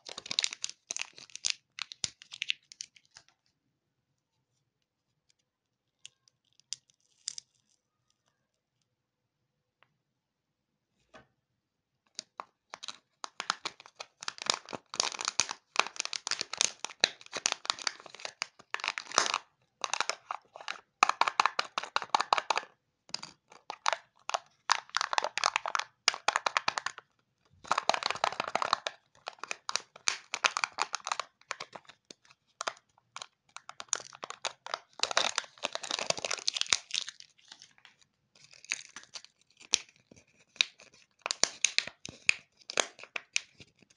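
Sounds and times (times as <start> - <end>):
foil wrapper crinkling and tearing: 0.0 - 3.2, 12.7 - 22.7, 23.5 - 27.0, 27.6 - 43.9.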